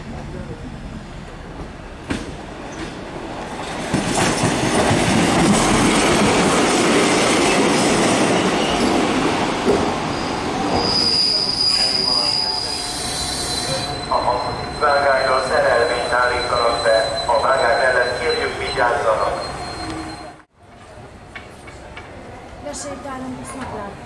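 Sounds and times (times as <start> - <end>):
railcar wheel and rail noise: 0.0 - 24.0
high-pitched wheel squeal: 10.0 - 20.4.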